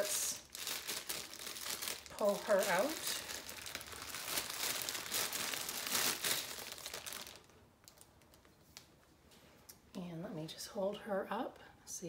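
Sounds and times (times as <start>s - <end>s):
plastic wrapping crinkling: 0.0s - 9.0s.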